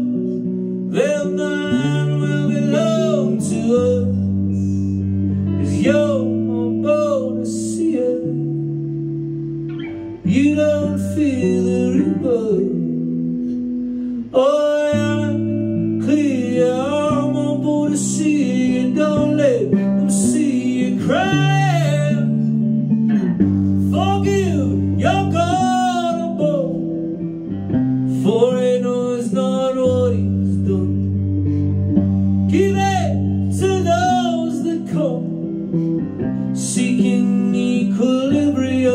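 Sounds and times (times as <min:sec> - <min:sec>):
man singing: 0:00.0 - 0:09.0, 0:10.2 - 0:13.4, 0:14.2 - 0:22.9, 0:23.8 - 0:31.6, 0:32.4 - 0:38.9
electric guitar chords: 0:00.0 - 0:38.9.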